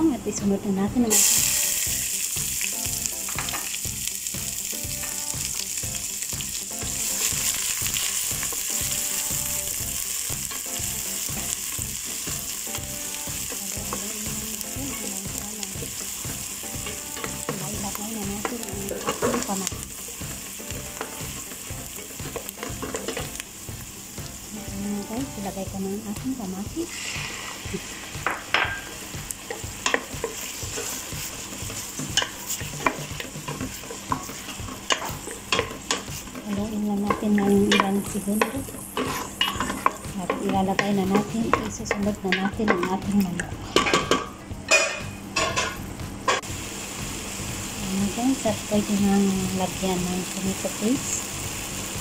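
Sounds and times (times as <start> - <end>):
onions sizzling in hot oil: 0.0 - 52.0
wooden spatula stirring: 29.5 - 42.1.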